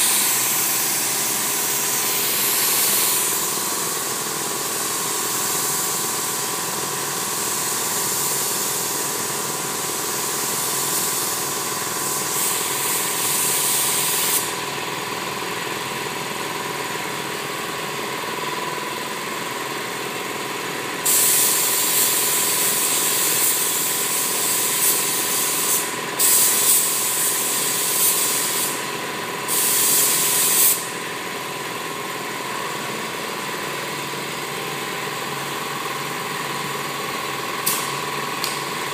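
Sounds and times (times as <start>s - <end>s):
paint spray gun hissing: 0.0s - 14.6s, 21.0s - 28.9s, 29.5s - 31.0s
steady machine hum: 0.0s - 38.9s.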